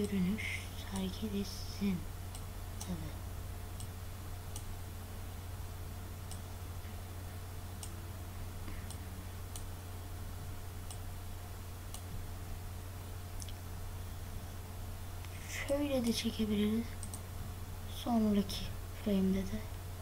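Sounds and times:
steady low hum: 0.0 - 20.0
computer mouse clicking: 8.7 - 9.7, 10.8 - 11.0, 16.9 - 17.2.

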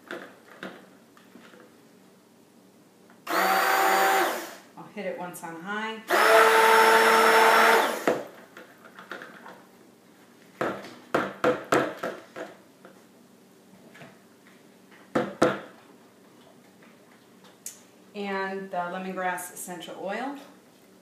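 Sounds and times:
stick blender whirring: 3.3 - 4.7, 6.1 - 8.2.

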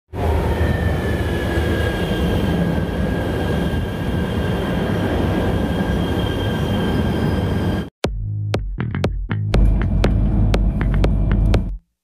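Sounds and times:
high squealing tones: 0.3 - 7.9.

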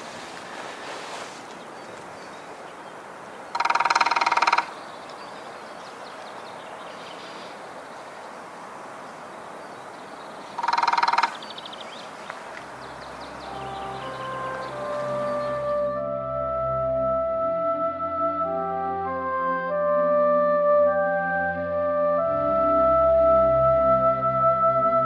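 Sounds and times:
outdoor background noise: 0.0 - 17.7
woodpecker drumming: 3.4 - 7.4, 9.8 - 15.8.

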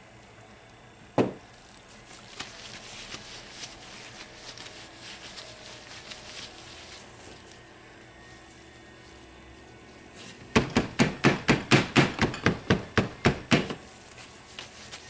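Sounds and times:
object thumped on worktop: 1.2 - 1.4
crinkly rustling: 1.5 - 10.4, 13.8 - 15.0.

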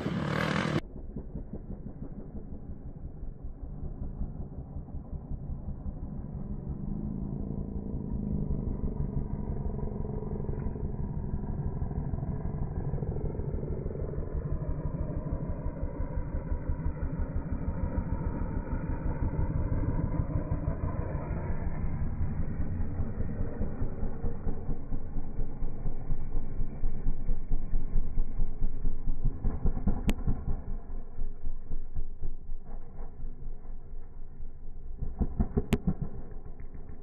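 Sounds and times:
dirt bike engine revving: 0.0 - 0.8.

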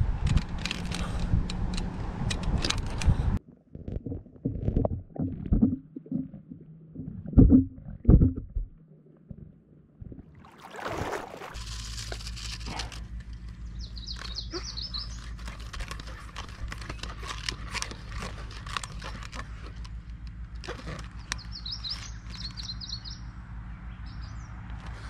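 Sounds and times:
plastic clicks and crinkles: 0.2 - 3.1, 11.6 - 22.7
songbird trilling: 13.6 - 15.5, 21.2 - 23.3.

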